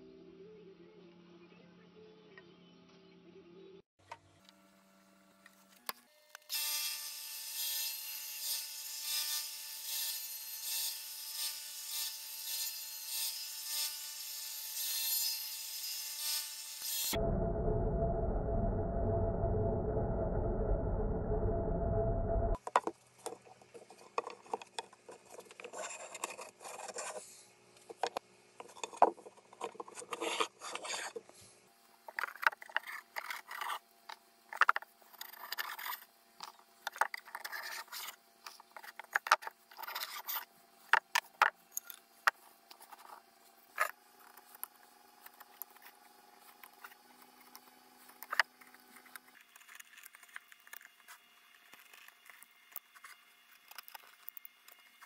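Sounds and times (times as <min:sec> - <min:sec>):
blade scraping wood: 0:28.6 - 0:31.3.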